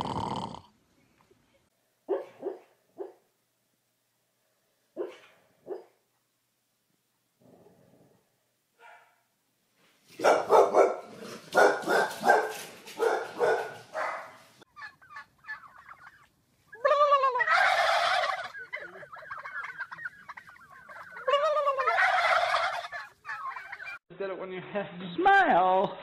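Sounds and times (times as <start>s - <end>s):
turkeys gobbling: 14.7s - 24.0s.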